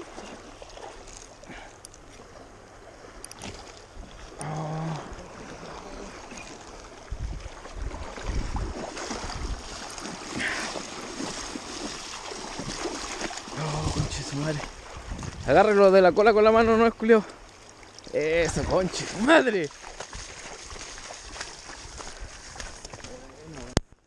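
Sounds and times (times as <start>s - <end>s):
river water splashing: 0.0s - 23.8s
wind rumbling on microphone: 3.9s - 17.0s, 19.9s - 23.9s.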